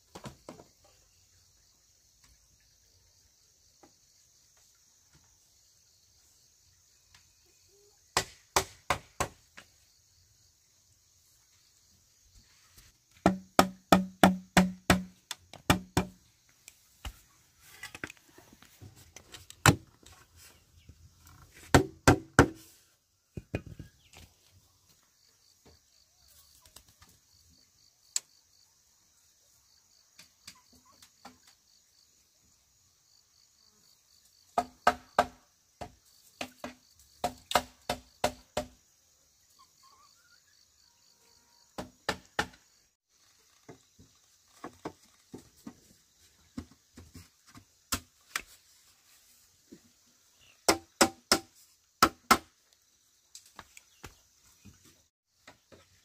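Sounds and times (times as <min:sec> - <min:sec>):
bamboo knocking on bamboo: 0:08.2 - 0:09.4, 0:13.1 - 0:16.2, 0:21.6 - 0:22.6, 0:23.4 - 0:23.9, 0:34.6 - 0:38.8, 0:41.8 - 0:42.7, 0:50.7 - 0:52.5
insects chirring: 0:23.4 - 0:56.0.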